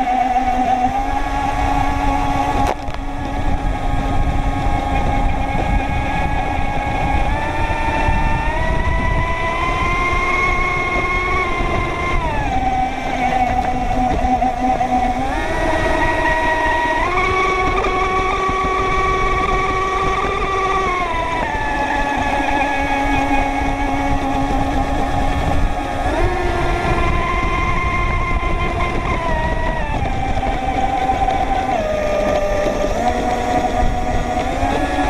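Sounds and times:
rc boat motor whining: 0.0 - 35.0.

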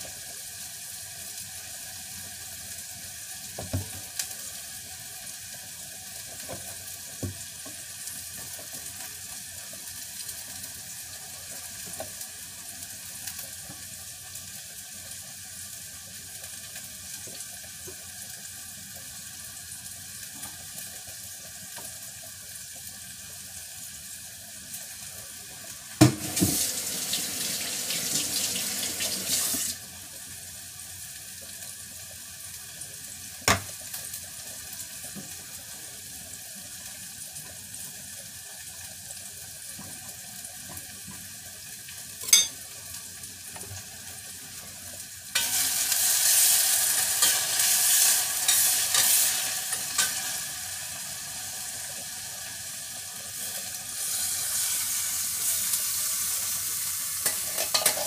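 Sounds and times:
food sizzling in frying: 0.0 - 58.0
kitchen tap running into sink: 26.0 - 29.8.

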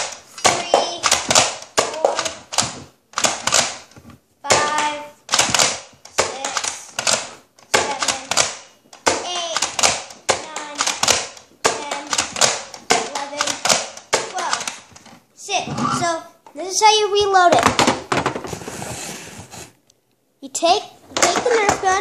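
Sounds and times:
toy dart blaster clacks and pops: 0.0 - 3.8.

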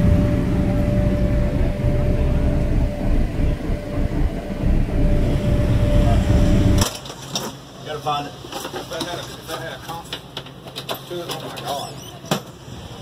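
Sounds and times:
subwoofers playing deep bass: 0.0 - 6.8
faint steady tone: 0.0 - 6.9.

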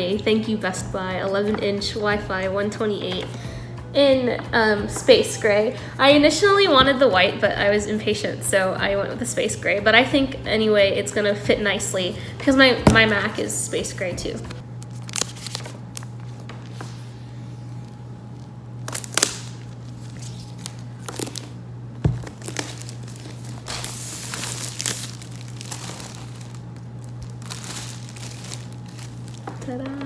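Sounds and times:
plastic wrap crinkling and tearing: 14.7 - 16.8, 17.6 - 30.0.

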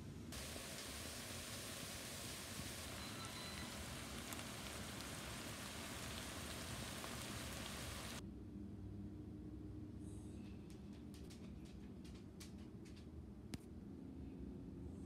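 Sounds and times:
vegetables sizzling in a pan: 0.3 - 8.2.

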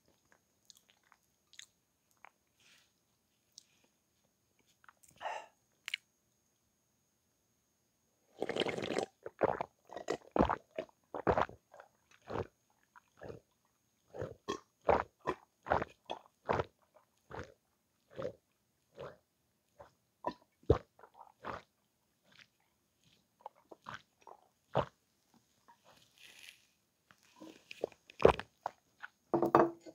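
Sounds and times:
person gulping milk: 0.1 - 2.4, 8.3 - 19.2, 19.8 - 25.0, 25.6 - 29.7.

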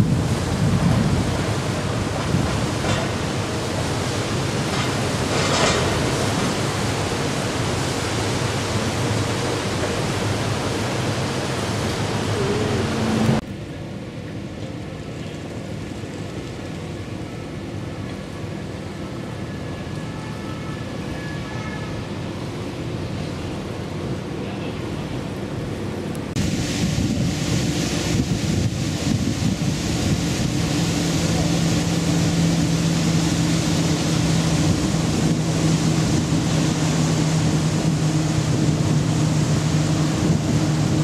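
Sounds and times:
wind buffeting microphone: 0.0 - 7.8, 26.2 - 41.0
water rushing: 0.0 - 41.0.

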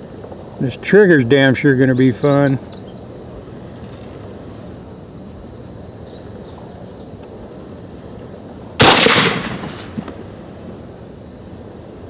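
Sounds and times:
rifle shot: 8.8 - 10.2.

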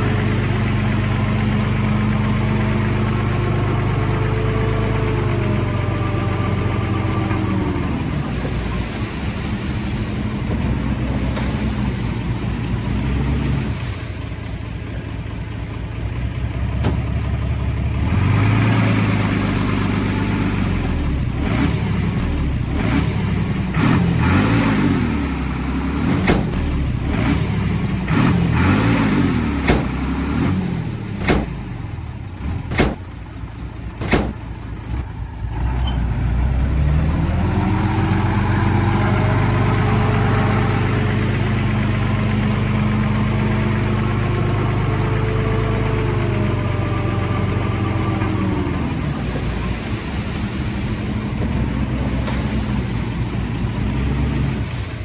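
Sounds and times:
diesel engine working: 0.0 - 55.0
sharp knocks: 26.2 - 26.7, 29.6 - 30.0, 31.2 - 31.6, 32.7 - 33.1, 34.0 - 34.4.

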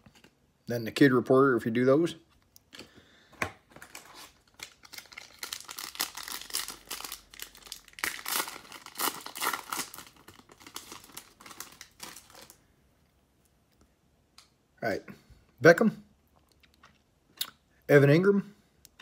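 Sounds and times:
foil wrapper tearing and crinkling: 3.8 - 12.6.

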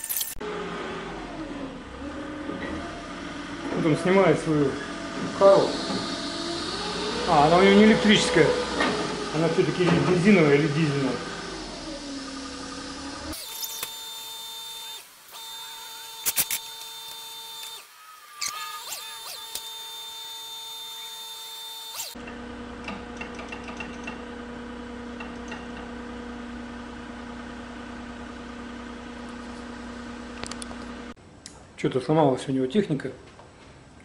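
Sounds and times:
forklift engine humming and whining: 0.4 - 13.5.

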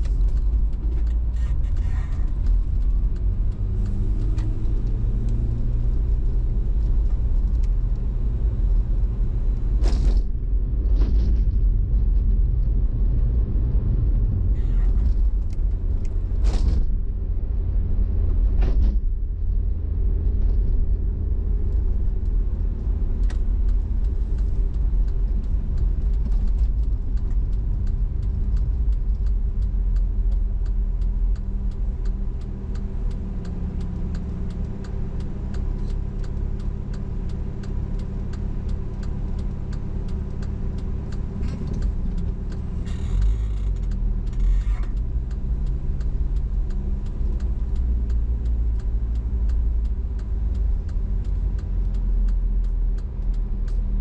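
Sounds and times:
turn signal ticking: 0.0 - 9.8, 20.9 - 54.0
road noise: 0.0 - 54.0.

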